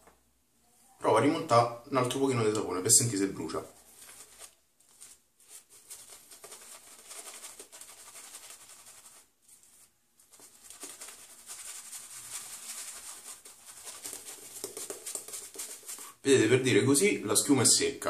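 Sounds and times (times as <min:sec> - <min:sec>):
shaving brush swishing: 0:04.0 - 0:16.2.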